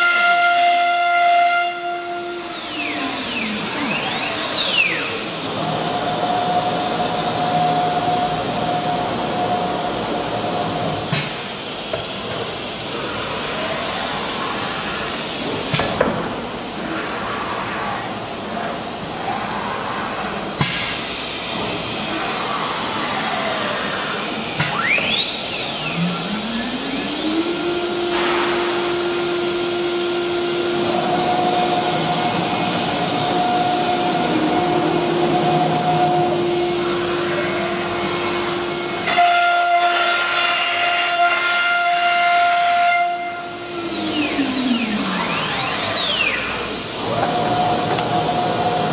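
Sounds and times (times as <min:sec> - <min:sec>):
router spindle whine: 0:01.1 - 0:10.9, 0:21.2 - 0:48.9
steady rushing machine noise: 0:21.1 - 0:39.5, 0:43.4 - 0:48.9.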